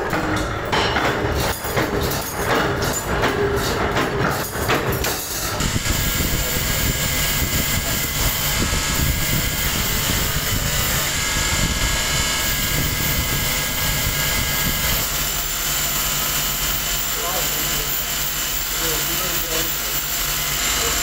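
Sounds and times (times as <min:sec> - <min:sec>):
machinery high whine: 0:05.4 - 0:21.0.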